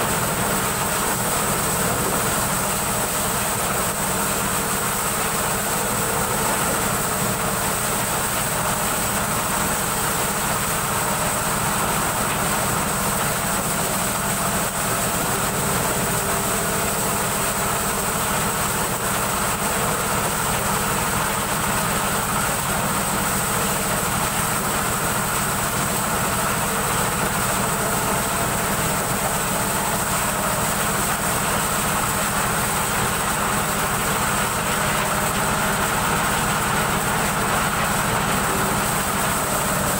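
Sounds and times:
corn sheller engine drone: 0.0 - 39.9.

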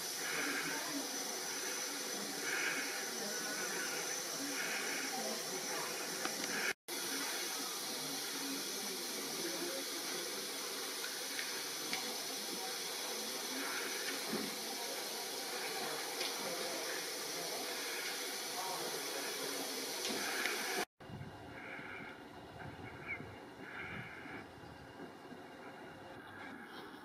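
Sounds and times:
steady hiss: 0.0 - 20.9.

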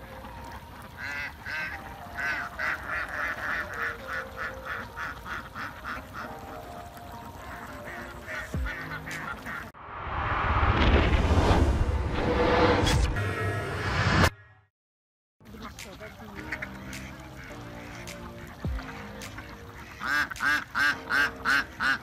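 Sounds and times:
ducks quacking: 0.1 - 9.8, 15.4 - 22.0
rising whoosh effect: 9.8 - 14.4.

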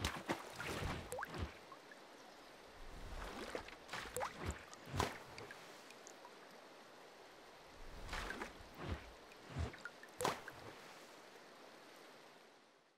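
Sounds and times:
water splashes and plops: 0.0 - 2.0, 2.8 - 6.6, 7.8 - 11.1.

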